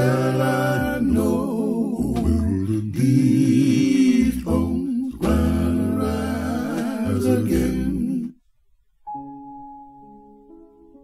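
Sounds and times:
male vocal group singing a cappella: 0.0 - 8.4.

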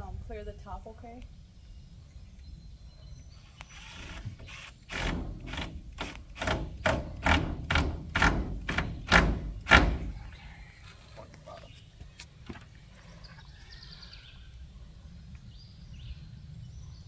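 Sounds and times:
cordless drill driving screw: 3.5 - 9.2.

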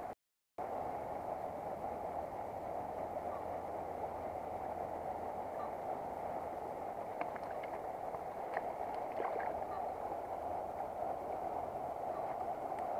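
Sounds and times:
faint clicks: 12.3 - 12.9.

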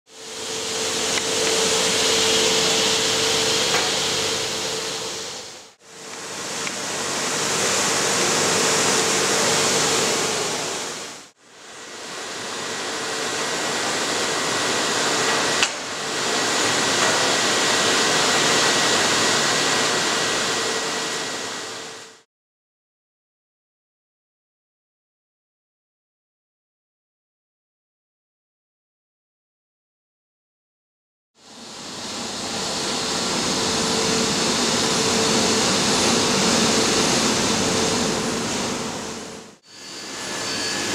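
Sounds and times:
machine blower fan hissing: 0.1 - 22.2, 31.4 - 40.9.

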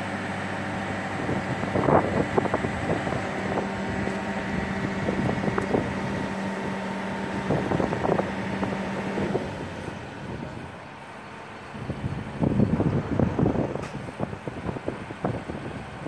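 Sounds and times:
power unit humming: 0.0 - 10.4.

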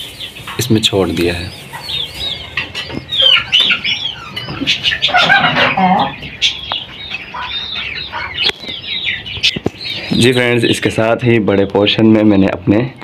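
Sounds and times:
small parrots chirping and squawking: 0.0 - 12.0.

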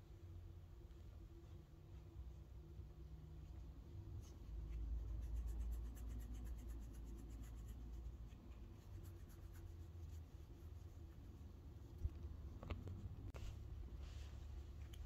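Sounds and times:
low steady rumble: 0.0 - 15.0
fingers scratching cat fur: 4.0 - 15.0.

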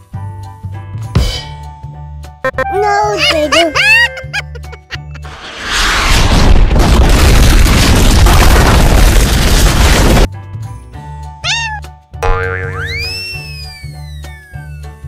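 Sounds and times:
background music: 0.0 - 5.2
rising slide tone: 5.2 - 6.5
noisy rushing burst: 5.2 - 9.3
cartoon meow-like call: 11.4 - 11.9.

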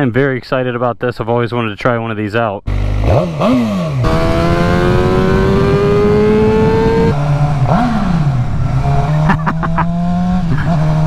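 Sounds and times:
motorcycle engine accelerating: 2.7 - 11.0.

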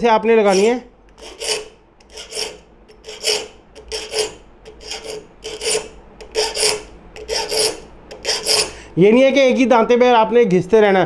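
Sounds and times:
file rasping on saw teeth: 0.4 - 8.8.

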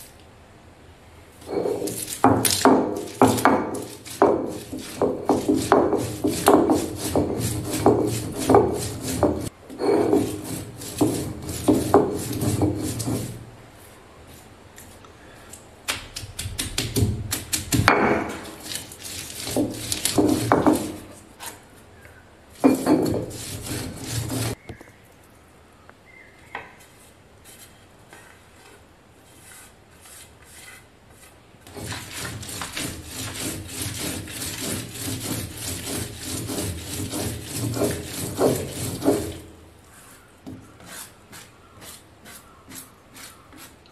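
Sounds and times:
stone roller grinding on stone slab: 1.4 - 13.5, 16.4 - 21.6, 22.6 - 24.6, 29.3 - 39.6.

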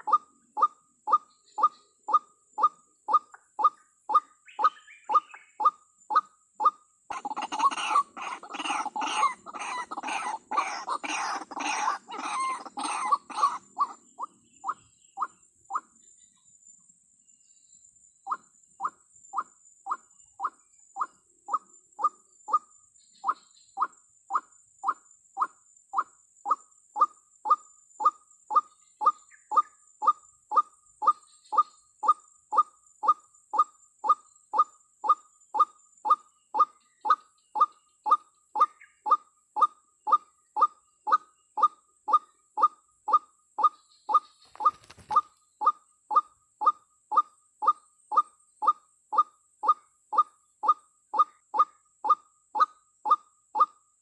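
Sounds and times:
waterhen call: 7.1 - 14.0
brief rustle: 44.4 - 45.3.

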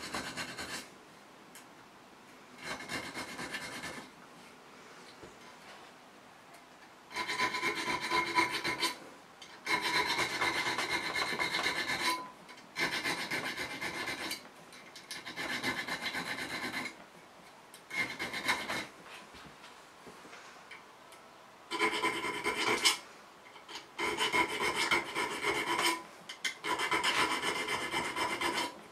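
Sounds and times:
needle file rasping on steel: 0.0 - 0.9, 2.6 - 4.1, 7.1 - 9.0, 9.6 - 17.0, 17.9 - 18.9, 21.7 - 23.0, 23.6 - 28.8.

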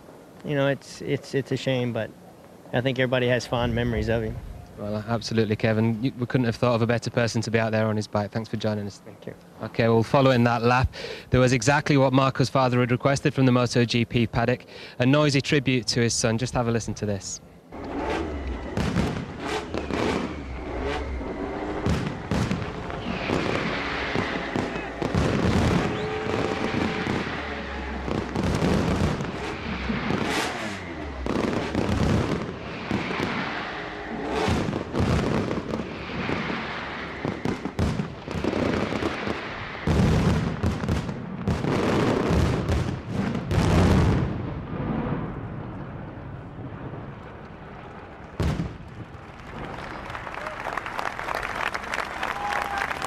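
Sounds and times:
fireworks and firecrackers banging: 17.8 - 46.0, 46.6 - 50.5, 51.3 - 53.0.

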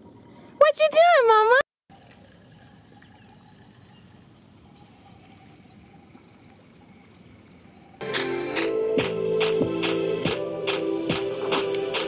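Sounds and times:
lake water at shoreline: 0.0 - 8.0
loud music with steady beat: 8.0 - 12.0.

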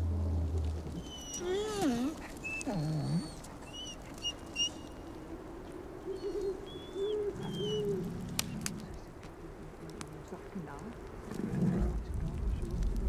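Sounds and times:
dogs whining: 0.8 - 5.0, 6.1 - 8.7.

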